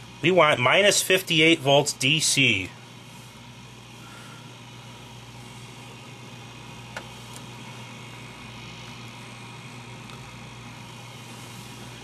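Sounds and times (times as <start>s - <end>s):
faint hiss: 0.0s - 12.0s
low electrical hum: 0.0s - 12.0s
small click: 6.9s - 7.5s.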